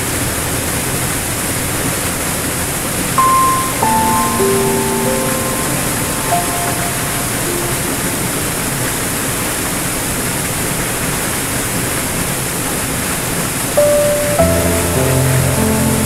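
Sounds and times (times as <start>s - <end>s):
piano notes: 3.2s - 9.0s, 13.8s - 16.0s.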